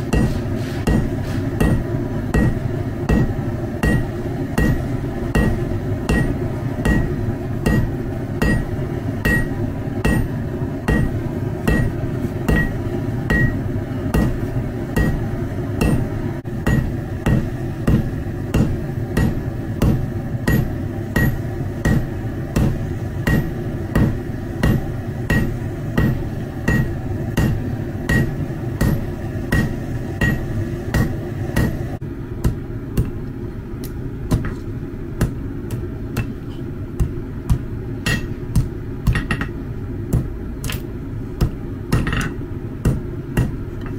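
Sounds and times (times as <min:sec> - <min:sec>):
hammer striking metal on anvil: 0:00.0 - 0:33.2, 0:35.2 - 0:40.8, 0:41.4 - 0:43.9
steady low rumble: 0:00.0 - 0:43.9.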